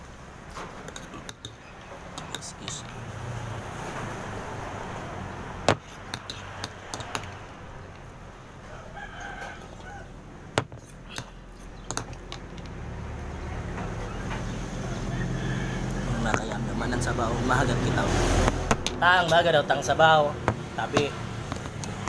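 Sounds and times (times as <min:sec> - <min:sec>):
rooster crowing: 0:08.6 - 0:10.2, 0:14.2 - 0:17.0.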